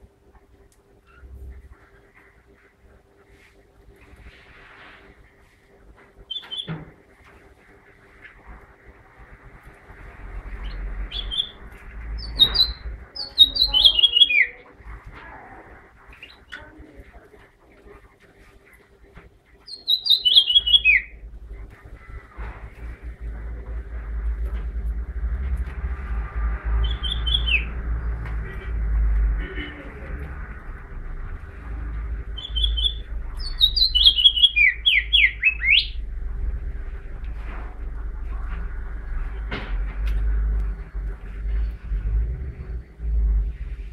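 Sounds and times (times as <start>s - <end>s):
finch chirping: 6.3s - 6.8s, 10.5s - 14.6s, 19.6s - 21.2s, 26.8s - 27.8s, 32.3s - 36.0s
low rumble: 21.1s - 43.9s.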